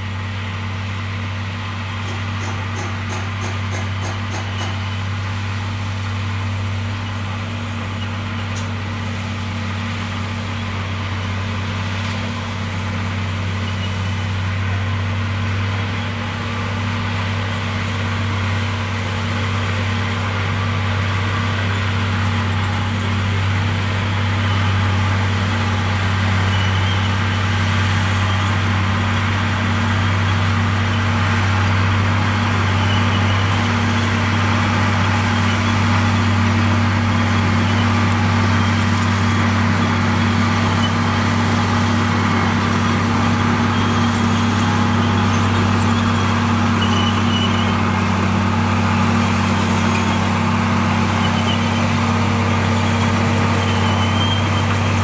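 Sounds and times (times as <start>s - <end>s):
bulldozer diesel engine drone: 0.0s - 55.0s.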